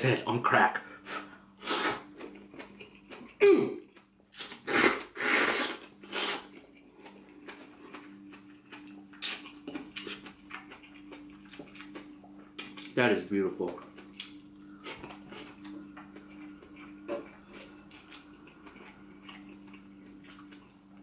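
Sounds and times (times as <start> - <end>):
faint steady hum: 0.0 - 21.0
person chewing: 1.0 - 13.0, 13.7 - 21.0
person slurping noodles: 1.1 - 2.1, 4.4 - 6.5.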